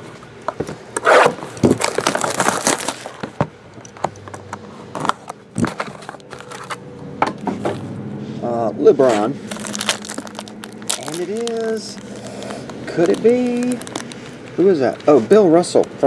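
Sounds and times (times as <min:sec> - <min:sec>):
plastic wrap crinkling and tearing: 0:01.0 - 0:03.4, 0:05.0 - 0:06.8, 0:09.0 - 0:16.0.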